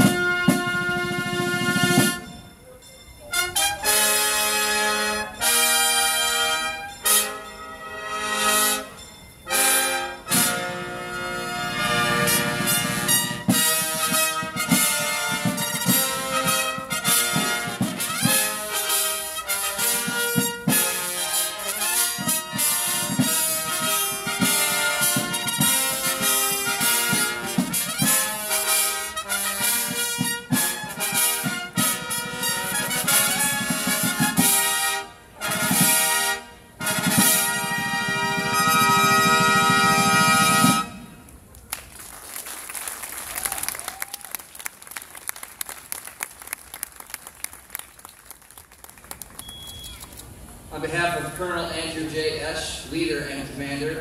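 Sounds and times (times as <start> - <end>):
snare drums beating: 0.0 - 2.3, 12.3 - 41.0
trumpet ensemble playing: 0.0 - 2.5, 3.3 - 41.4.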